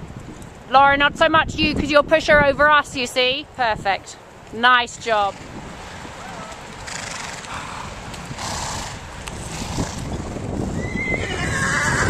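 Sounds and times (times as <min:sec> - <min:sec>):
hoofbeats on ground: 0:05.0 - 0:12.0
horse whinnying: 0:06.2 - 0:12.0.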